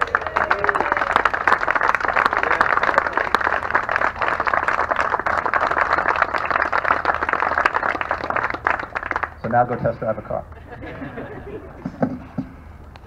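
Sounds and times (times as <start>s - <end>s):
crowd applauding: 0.0s - 9.9s.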